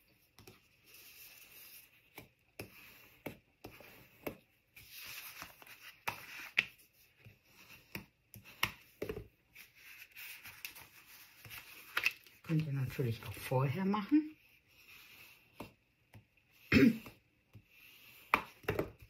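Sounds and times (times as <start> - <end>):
paper rustling: 4.8 - 7.9.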